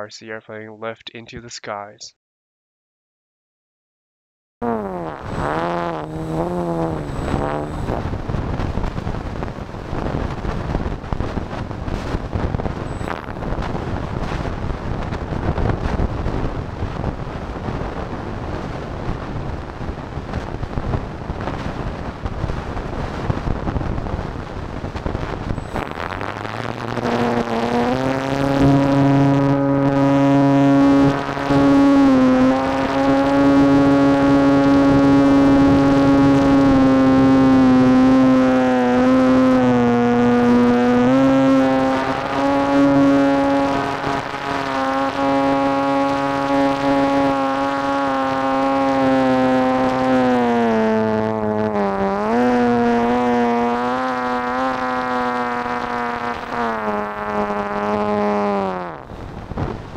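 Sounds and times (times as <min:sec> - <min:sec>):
model airplane motor buzzing whine: 0:04.6 - 0:16.9, 0:25.2 - 0:59.9.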